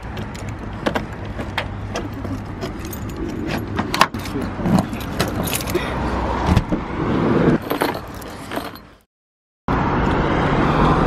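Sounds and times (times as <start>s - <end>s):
road traffic noise: 0.0s - 9.1s, 9.7s - 11.0s
keys jangling in door lock: 2.0s - 5.8s.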